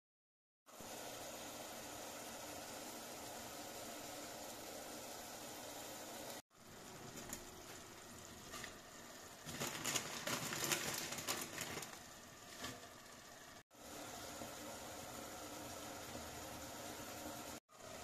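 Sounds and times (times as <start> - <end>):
pot simmering hiss: 0.7 - 18.0
leaves rustling and crackling: 9.4 - 12.8.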